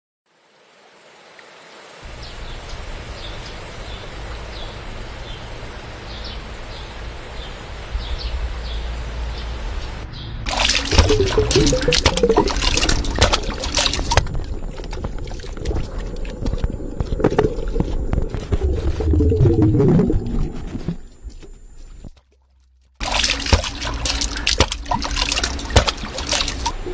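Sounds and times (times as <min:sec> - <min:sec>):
creek water rushing: 0:10.5 - 0:19.4, 0:23.0 - 0:26.9
splashes and drips: 0:10.5 - 0:21.0, 0:22.2 - 0:26.9
water trickling and gurgling: 0:10.5 - 0:26.9.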